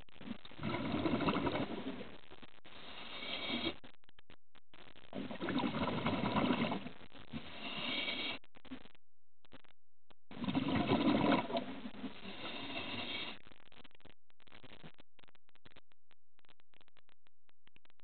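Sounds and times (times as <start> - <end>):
scuba regulator breathing underwater: 2.8 - 3.8, 5.6 - 8.4, 10.4 - 13.4.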